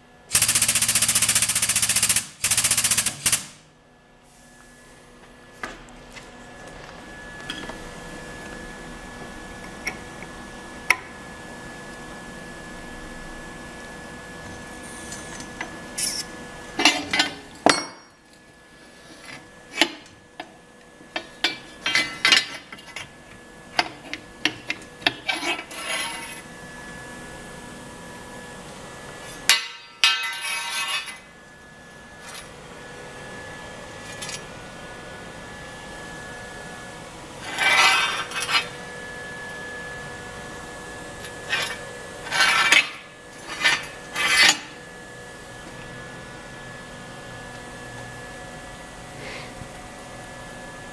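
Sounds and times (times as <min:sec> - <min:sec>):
faint electrical hum: 0:00.0 - 0:50.9.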